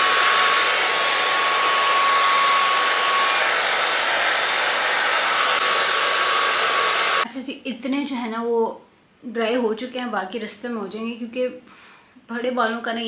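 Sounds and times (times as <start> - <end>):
hair dryer running: 0.0 - 7.3.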